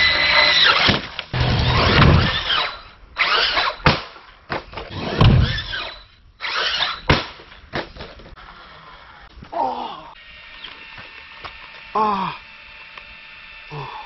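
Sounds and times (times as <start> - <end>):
electric motor whining: 0.0 - 3.8, 10.2 - 14.0.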